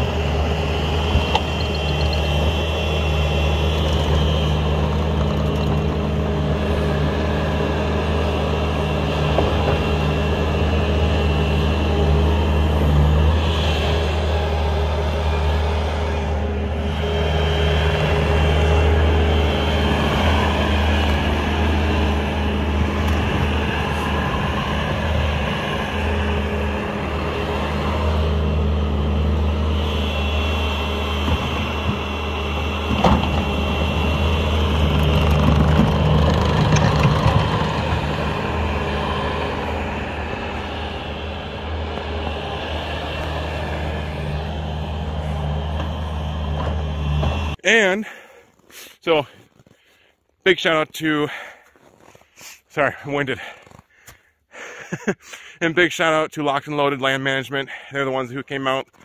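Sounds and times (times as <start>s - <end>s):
diesel engine running: 0.0s - 48.3s.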